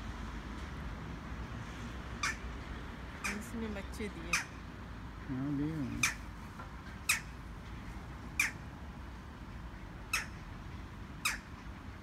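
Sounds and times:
bird giving sharp high calls: 2.2 - 2.5, 6.0 - 6.2, 8.4 - 8.6, 10.1 - 10.4, 11.2 - 11.5.

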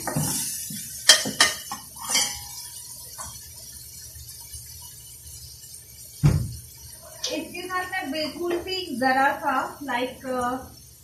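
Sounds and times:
metal spoon clinking on pot: 1.1 - 2.6.

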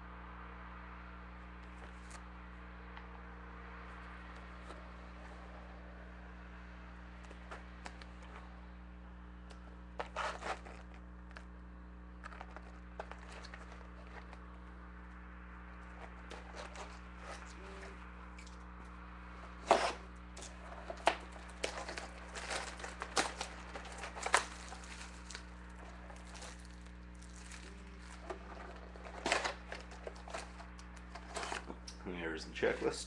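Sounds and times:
low electrical hum: 0.0 - 33.0
shrink wrap crinkling and tearing: 9.5 - 11.5, 12.2 - 32.0.

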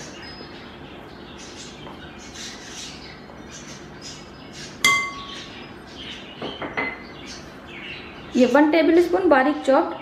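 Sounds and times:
spoon clinking glass bowl: 4.8 - 5.3.

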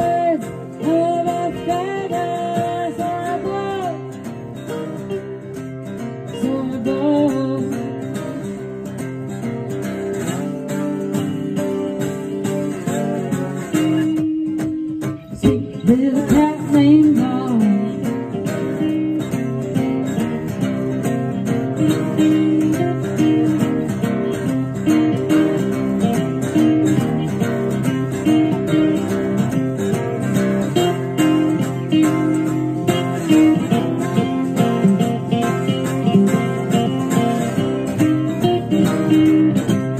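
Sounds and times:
woman singing: 0.0 - 5.2, 6.2 - 8.6, 13.7 - 39.9
acoustic guitars strummed: 0.0 - 39.9.

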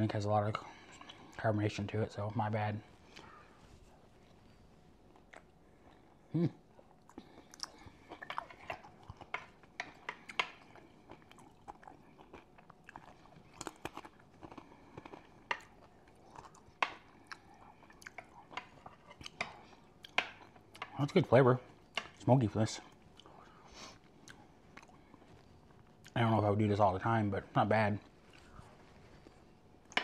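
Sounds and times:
close chewing with mouth clicks: 6.7 - 20.9.

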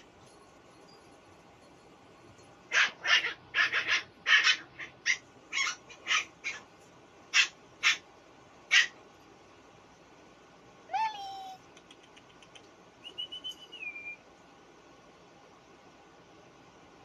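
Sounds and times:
puppies yipping: 2.7 - 6.7.

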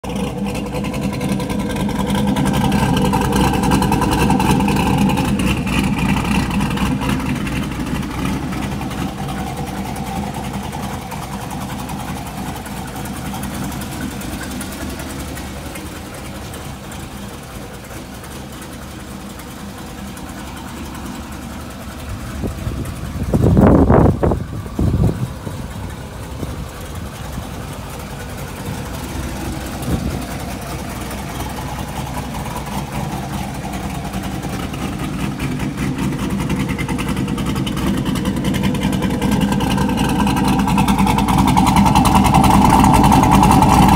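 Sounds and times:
car engine idling: 0.0 - 43.9.

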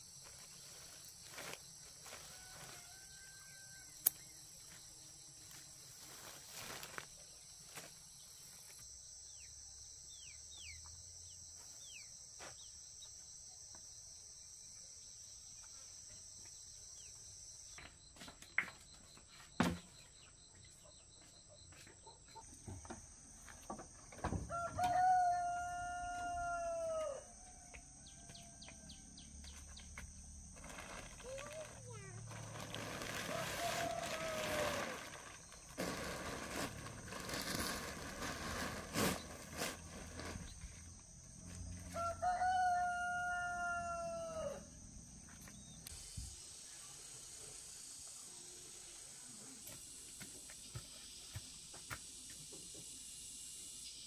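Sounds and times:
rooster crowing: 2.0 - 4.0, 24.4 - 29.3, 33.2 - 35.0, 41.9 - 44.8
high-pitched hiss: 45.5 - 54.0.

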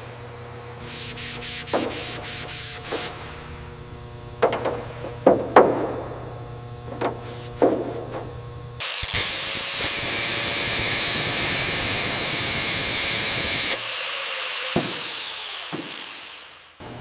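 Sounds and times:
low hum: 2.1 - 8.8
angle grinder grinding metal: 6.8 - 16.6.

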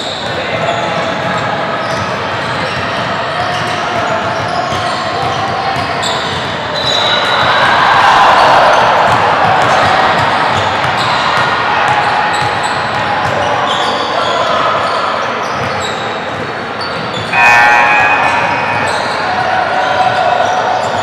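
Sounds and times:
sneakers squeaking on court: 9.6 - 21.0
players calling out: 16.8 - 21.0
loud shout: 17.3 - 21.0.

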